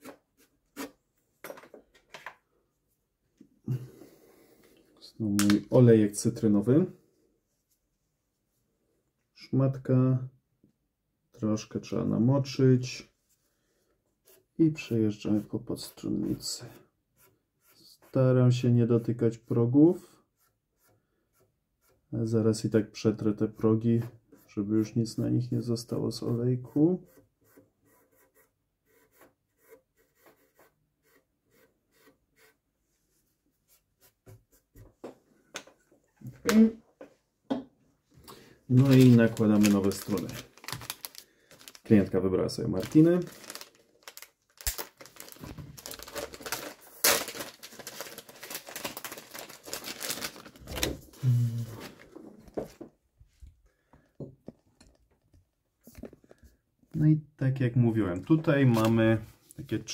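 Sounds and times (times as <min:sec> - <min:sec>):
packaging crackling and rustling: 0:38.7 - 0:42.1, 0:42.7 - 0:51.2.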